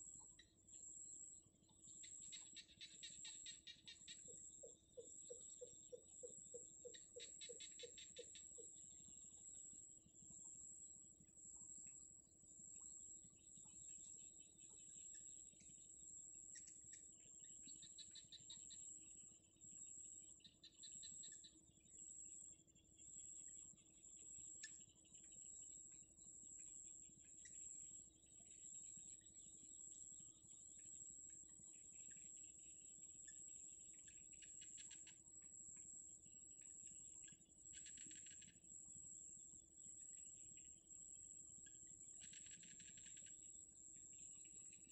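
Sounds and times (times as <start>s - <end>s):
bird chirping: 1.6s - 9.5s
insect high-pitched whine: 35.8s - 44.9s
insect pulsing trills: 37.7s - 38.6s, 42.2s - 43.4s.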